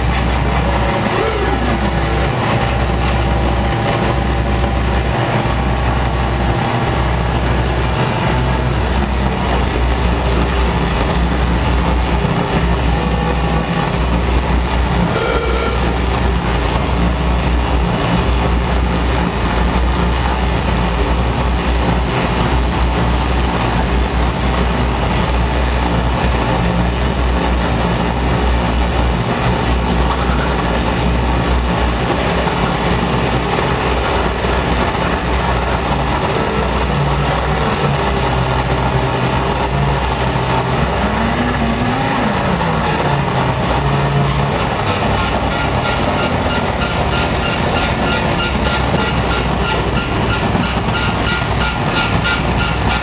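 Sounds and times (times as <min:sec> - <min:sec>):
low tone bending: 0:00.0 - 0:53.0
noisy drone music with bass: 0:00.0 - 0:53.0.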